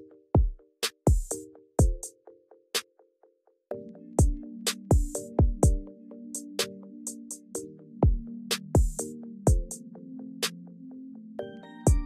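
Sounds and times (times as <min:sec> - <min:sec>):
drum machine beat: 0:00.4 - 0:02.1, 0:04.2 - 0:05.8, 0:08.0 - 0:09.8.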